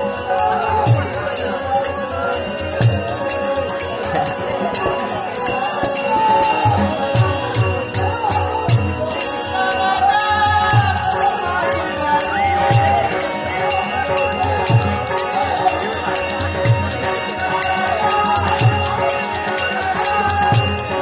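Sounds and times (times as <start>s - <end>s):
harmonium notes: 0.0s - 21.0s
small bells jingling: 0.0s - 21.0s.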